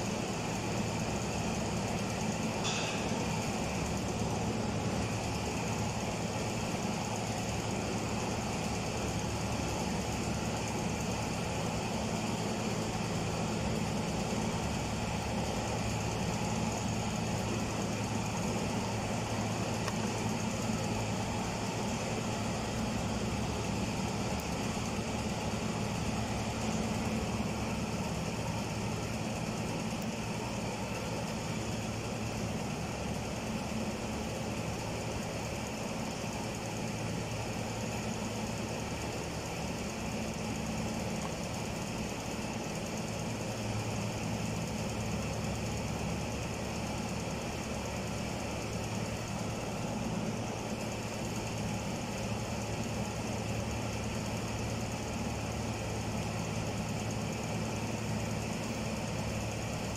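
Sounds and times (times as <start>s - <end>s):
machine humming with high whine: 0.0s - 59.9s.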